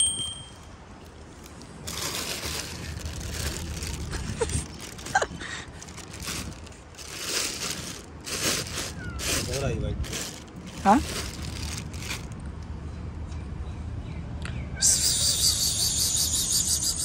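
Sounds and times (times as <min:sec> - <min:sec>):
plastic bag crinkling: 0:01.1 - 0:12.5.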